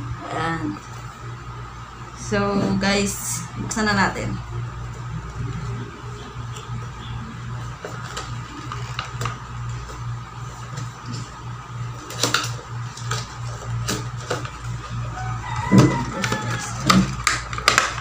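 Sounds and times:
steady background hum: 0.0 - 18.0
cardboard packaging rustling: 7.6 - 11.2.

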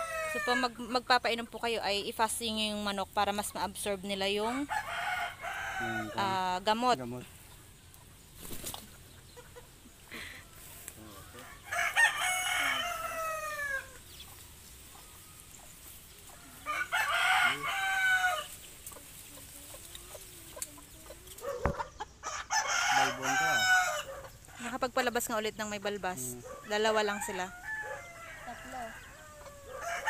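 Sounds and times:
rooster crowing: 0.0 - 0.8, 4.4 - 6.4, 11.1 - 14.0, 16.4 - 18.5, 22.2 - 24.3, 26.4 - 30.0.

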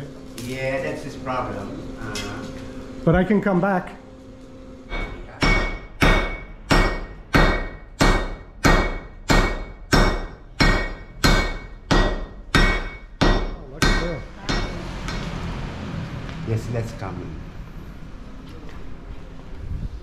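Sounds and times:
hammer striking metal on anvil: 4.9 - 15.3.

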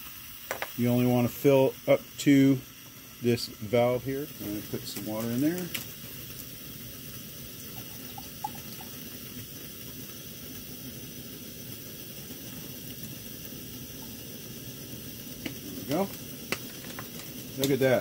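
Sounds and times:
stove burner hissing: 0.0 - 18.0
water pouring into metal pot: 0.0 - 18.0.

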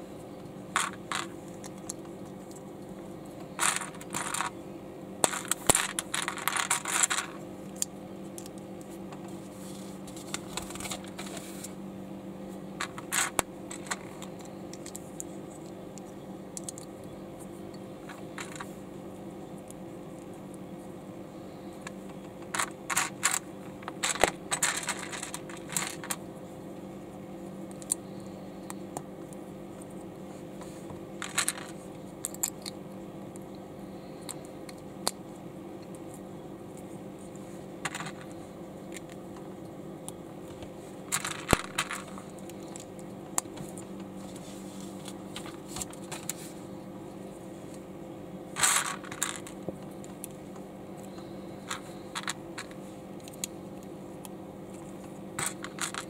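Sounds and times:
steady low hum: 0.0 - 56.0
plastic bricks clicking and clattering: 3.5 - 4.5, 5.2 - 7.4, 22.4 - 26.2, 31.2 - 32.8, 37.8 - 38.3, 41.1 - 42.9, 48.6 - 49.6, 55.4 - 56.0.

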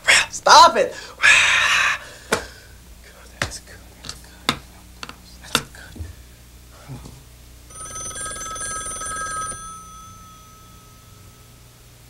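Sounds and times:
telephone bell ringing: 7.7 - 11.9.

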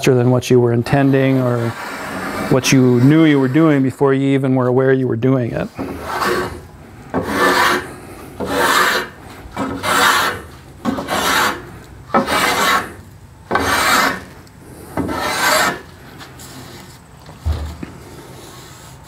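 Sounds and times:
hand plane shaving wood: 0.2 - 3.9, 5.8 - 14.3, 14.9 - 16.8.

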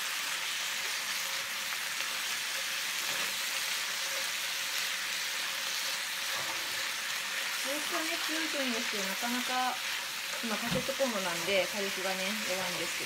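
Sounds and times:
food sizzling in a frying pan: 0.0 - 13.0.

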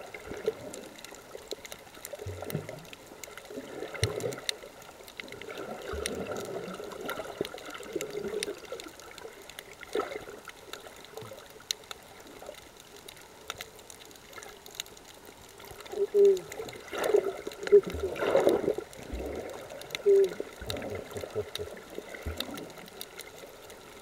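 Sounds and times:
sharp clicks and crackles: 0.0 - 24.0
muffled underwater rush: 15.3 - 24.0.

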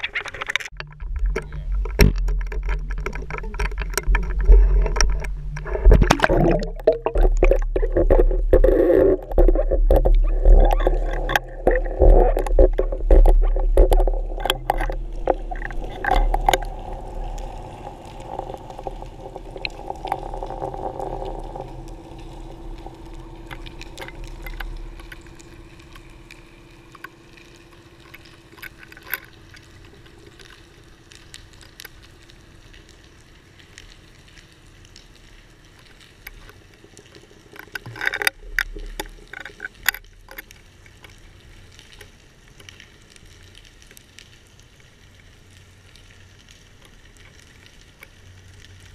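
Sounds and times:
underwater crackling clicks: 0.0 - 48.9
low hum and rumble: 0.7 - 37.5.

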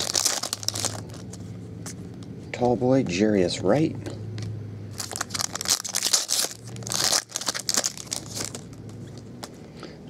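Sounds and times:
trading cards being shuffled: 5.0 - 9.6.

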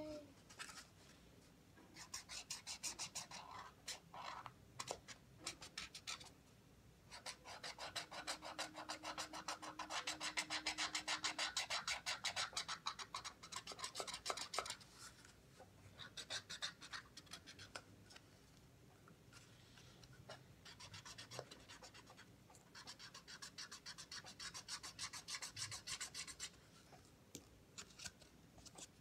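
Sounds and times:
marker drawing on cardboard: 2.0 - 6.3, 7.1 - 14.8, 16.0 - 17.8, 20.2 - 26.6.

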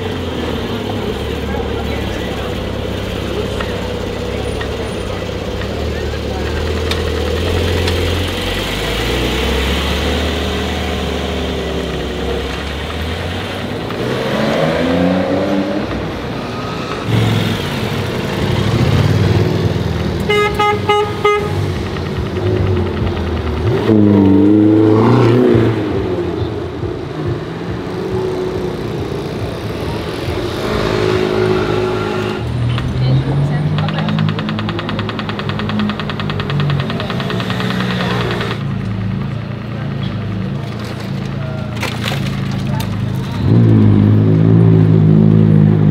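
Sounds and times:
car engine revving away: 0.0 - 20.2, 21.6 - 45.9
sports car engine rumble: 0.0 - 45.9
rapid horn-like tone: 20.3 - 21.6, 30.8 - 32.5.

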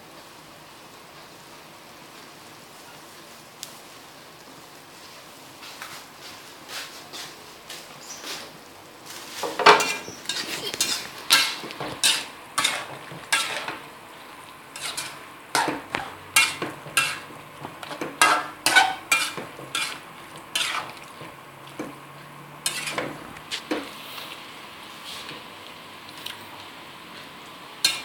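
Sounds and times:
food sizzling: 1.8 - 28.0
utensil scraping a wok: 5.6 - 25.4, 27.2 - 28.0.

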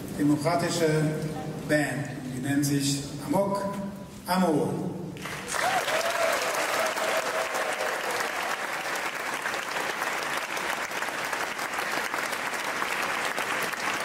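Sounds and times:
audience applauding: 5.2 - 14.0
person cheering: 5.6 - 8.3.

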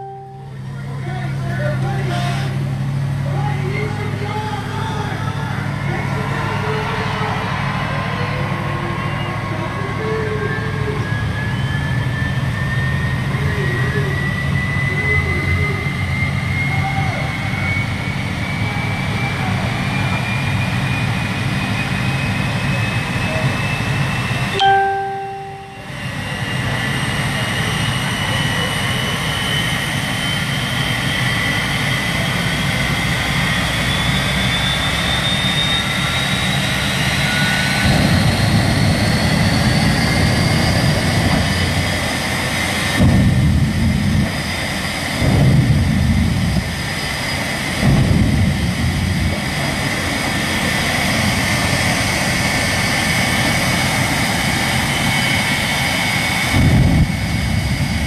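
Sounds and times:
jet engine turbine whine: 0.0 - 58.0
deep jet blast surges: 25.8 - 58.0.

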